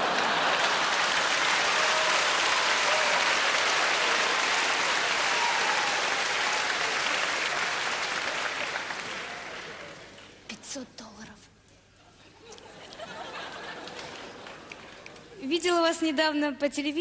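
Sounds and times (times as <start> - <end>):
audience applause: 0.0 - 10.5, 12.8 - 15.4.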